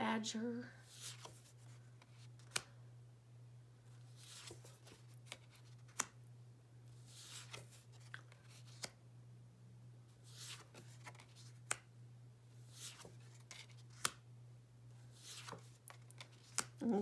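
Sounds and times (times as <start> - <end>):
faint low hum: 0.0 - 17.0
sharp card clicks: 2.4 - 2.7, 13.9 - 14.2.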